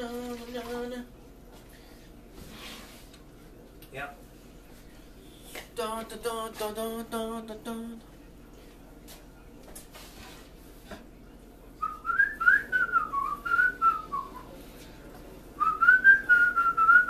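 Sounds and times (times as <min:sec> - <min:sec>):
man whistling a tune: 0:11.8 - 0:14.5, 0:15.6 - 0:17.0.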